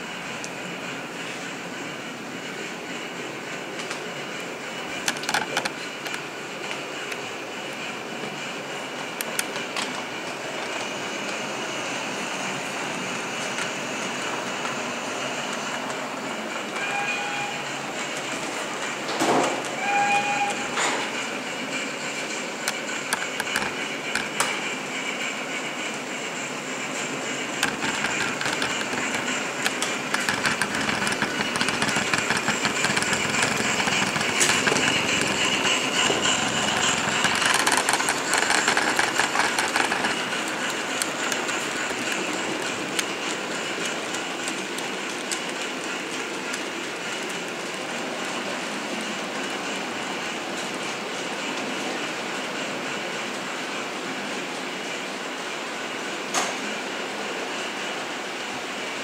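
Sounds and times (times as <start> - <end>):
model train running: 0.0 - 59.0
wheels clicking over rail joints: 4.8 - 7.2, 22.1 - 24.7, 27.1 - 48.6.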